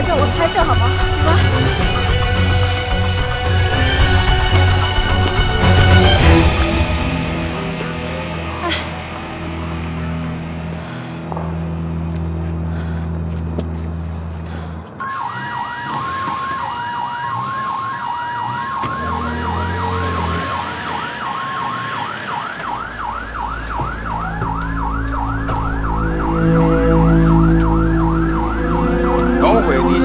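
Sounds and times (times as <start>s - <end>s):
police sirens wailing: 15.0s - 30.0s.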